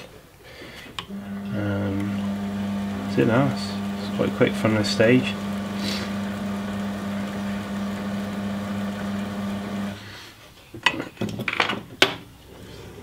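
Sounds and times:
small electric motor humming: 1.1 - 10.0.

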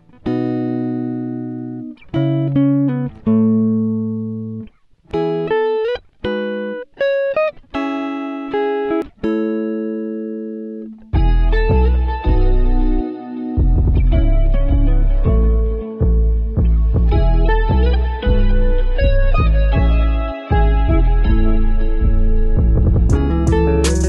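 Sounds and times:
plucked string melody: 0.0 - 24.0
music with deep bass: 11.2 - 24.0.

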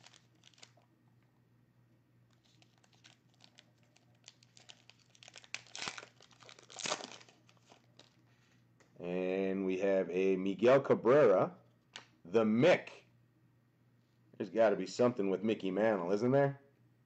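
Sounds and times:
wrapper crinkling and tearing: 0.0 - 0.8, 2.3 - 8.2.

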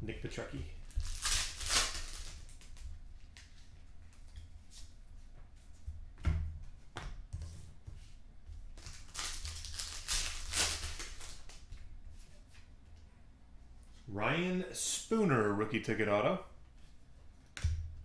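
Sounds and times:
foil wrappers crinkling and tearing: 0.9 - 2.8, 8.8 - 11.7.

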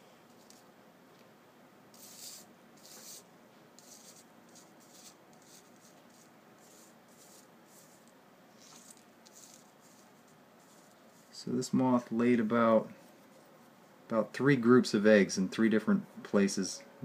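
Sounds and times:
fingertips rubbing on paper: 2.0 - 3.2, 3.8 - 11.4.

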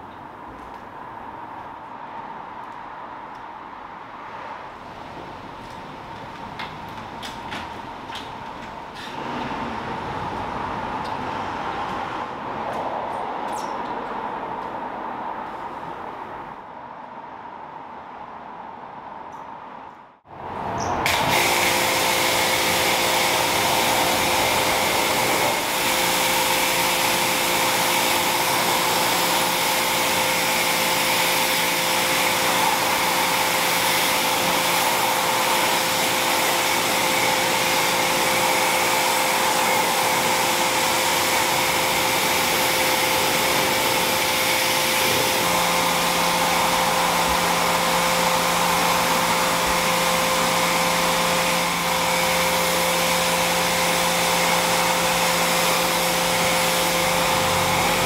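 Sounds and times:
pressure washer water jet hissing: 21.0 - 58.0
washer motor and pump humming: 21.1 - 58.0.

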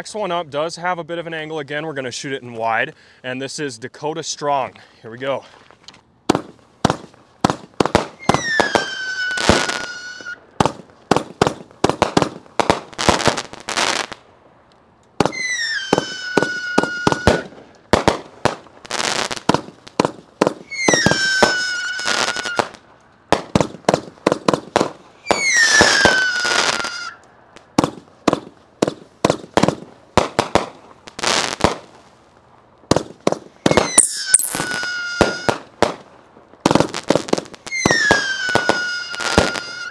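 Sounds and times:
fireworks cake firing shots: 6.3 - 14.2, 15.2 - 32.0, 32.9 - 39.9
whistling firework shot: 8.0 - 10.4, 15.2 - 17.6, 20.6 - 22.8, 25.2 - 27.2, 33.6 - 35.7, 37.7 - 39.9.

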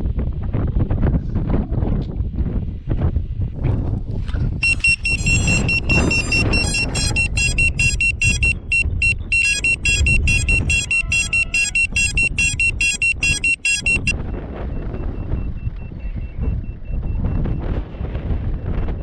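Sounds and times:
wind rumble on microphone: 0.0 - 19.0
rapid electronic beeping: 4.6 - 14.2.

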